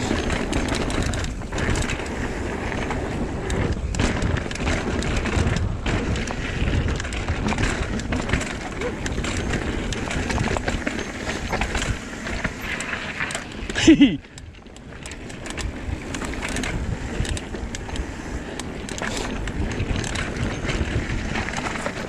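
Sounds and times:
bike rattling and clicking: 0.0 - 22.0
bike tyres rolling over dirt: 0.0 - 22.0.

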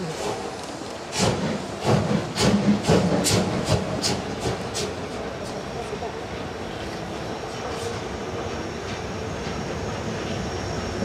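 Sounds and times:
steam locomotive chuffing: 0.0 - 5.9.

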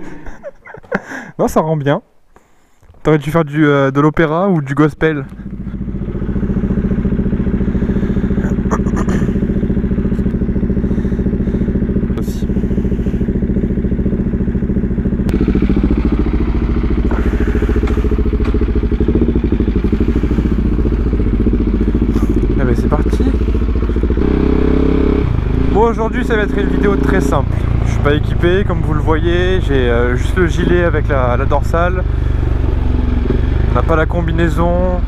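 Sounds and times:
motorcycle engine idling: 4.8 - 35.0.

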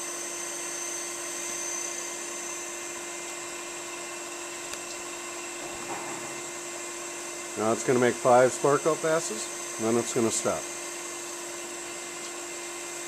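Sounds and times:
surface grinder high whine: 0.0 - 13.0.

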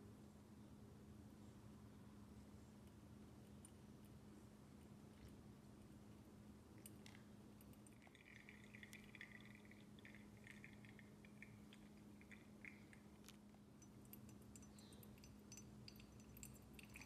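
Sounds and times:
water trickling onto coffee grounds: 6.8 - 17.0.

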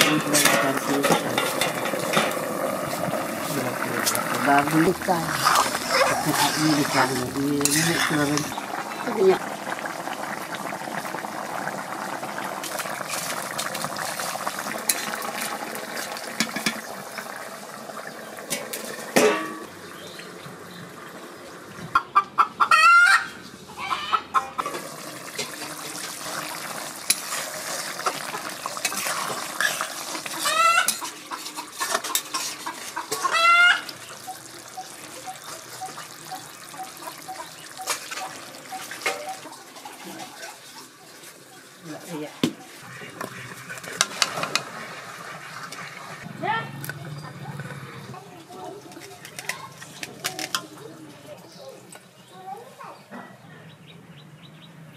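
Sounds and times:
chickens clucking: 0.0 - 12.1, 18.0 - 26.8, 27.5 - 54.9
chickens crowing: 5.3 - 7.1, 20.9 - 25.3, 29.4 - 40.0.

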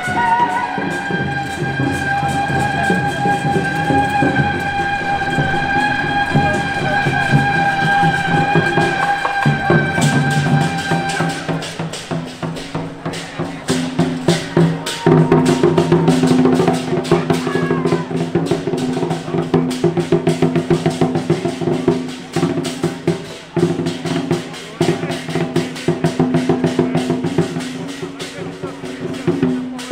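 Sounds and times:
held high tone: 0.0 - 19.3
drums and clashing cymbals: 0.0 - 29.9.

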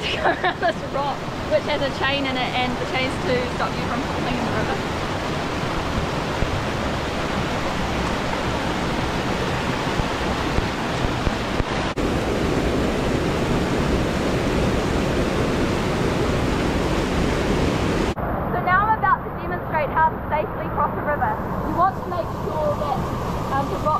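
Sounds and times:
whitewater rushing over boulders: 0.0 - 18.2.

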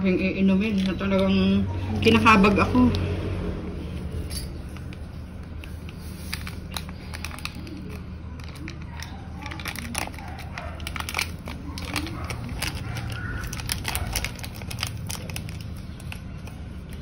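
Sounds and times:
plastic sachet crinkling: 5.2 - 17.0.

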